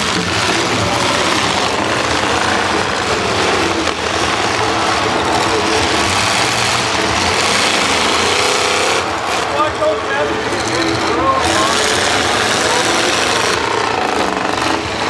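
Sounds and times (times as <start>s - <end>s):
car engines revving: 0.0s - 15.0s.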